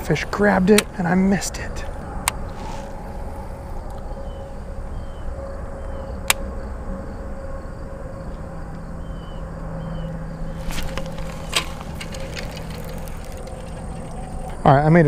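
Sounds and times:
faint low hum: 0.0s - 15.0s
outdoor background noise: 0.0s - 15.0s.

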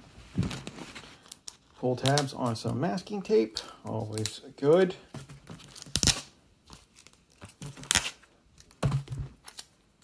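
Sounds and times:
masking tape ripping: 5.7s - 6.3s, 7.0s - 8.2s.

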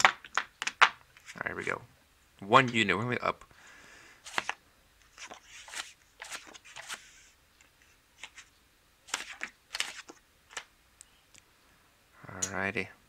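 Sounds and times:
playing cards snapping: 4.3s - 4.6s, 9.1s - 10.7s.

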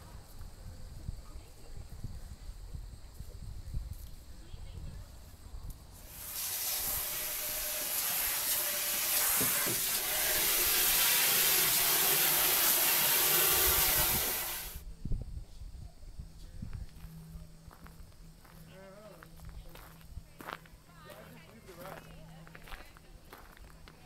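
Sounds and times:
hose water spraying: 6.0s - 14.8s.

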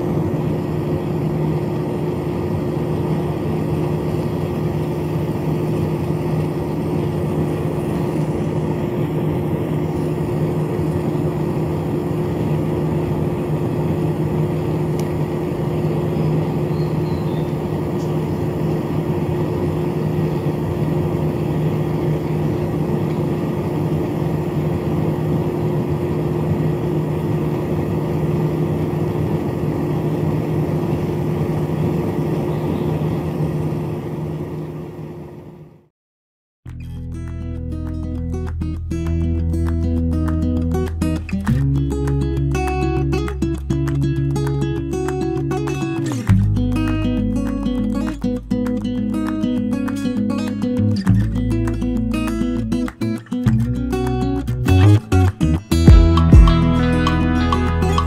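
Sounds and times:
small motor spinning fan: 0.0s - 35.7s.

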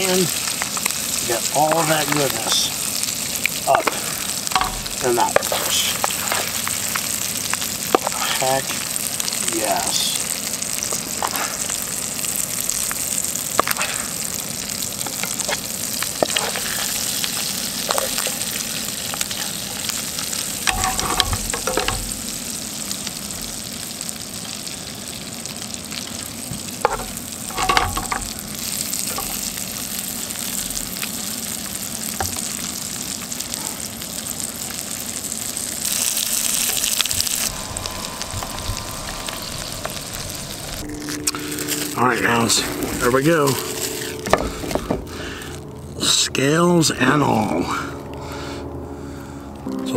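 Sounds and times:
fish sizzling in butter: 0.0s - 45.8s
metal spoon scraping pan: 4.6s - 6.6s, 20.7s - 22.2s.

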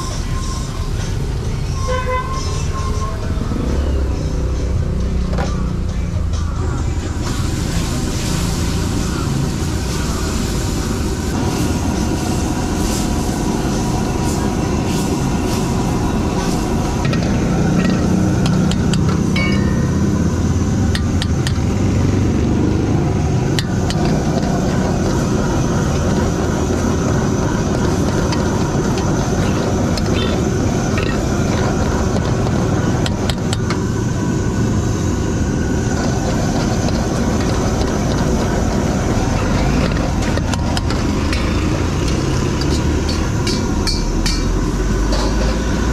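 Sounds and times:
gas burner roaring: 0.0s - 45.9s
metal ladle clinking on wok: 19.4s - 20.2s.

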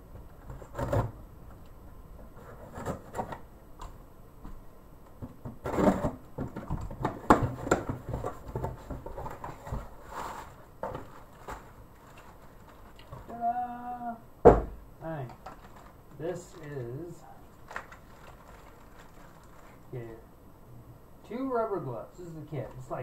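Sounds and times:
scraping and tapping in cardboard box: 2.4s - 3.4s, 5.2s - 12.3s
plastic bags rustling: 7.5s - 13.3s, 15.4s - 16.8s, 17.5s - 20.0s.

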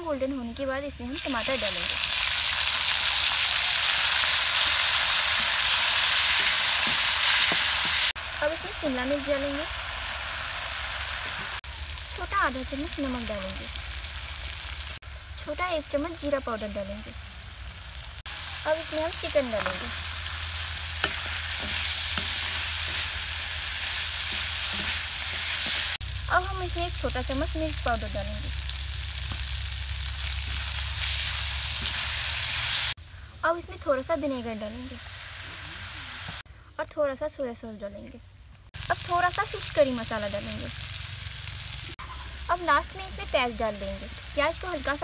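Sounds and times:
tomatoes sizzling in hot oil: 0.2s - 33.0s, 33.8s - 36.4s, 38.7s - 45.0s
wooden spatula stirring and knocking: 24.2s - 25.9s.

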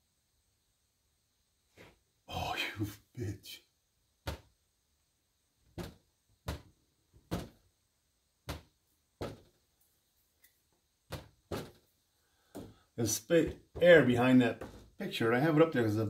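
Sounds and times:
short knocks and thuds: 4.2s - 4.6s, 5.6s - 7.7s, 8.4s - 9.6s, 11.1s - 11.9s, 12.5s - 15.0s.

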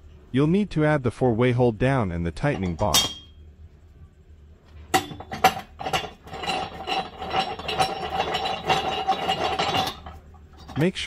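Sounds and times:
sharp metal clanks: 2.6s - 3.4s, 4.9s - 10.9s
metallic rattling and scraping: 4.7s - 11.0s.

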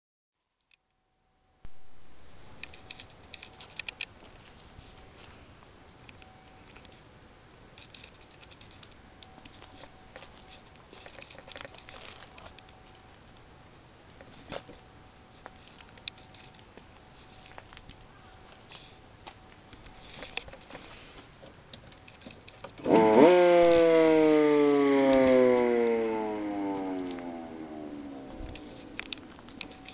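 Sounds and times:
siren wailing: 22.9s - 29.9s.

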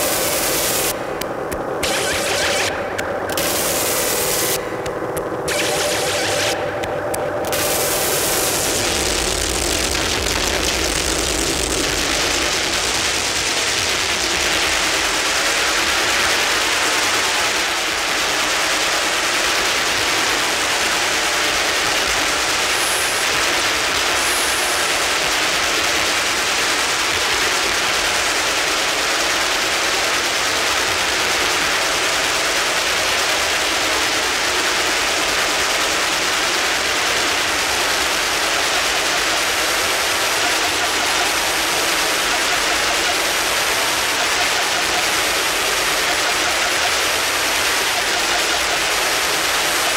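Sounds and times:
electronic noise and feedback hiss: 0.0s - 49.9s.

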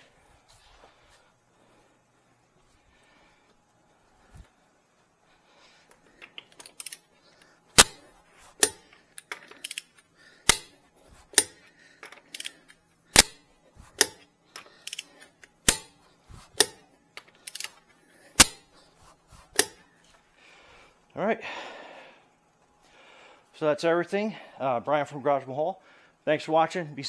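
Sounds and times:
ratchet and handling noises: 5.8s - 20.2s
torque wrench clicks: 8.6s - 10.7s, 12.3s - 13.4s.

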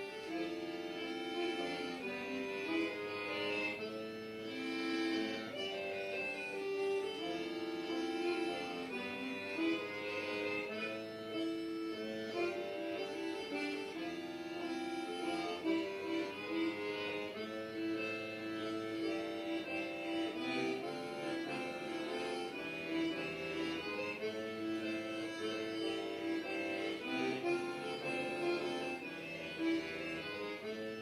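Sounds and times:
instrumental music of long held notes: 0.0s - 31.0s.

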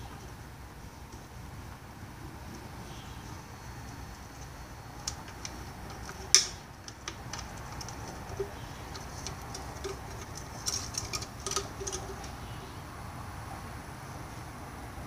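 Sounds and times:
plastic parts clicking: 5.0s - 12.4s.

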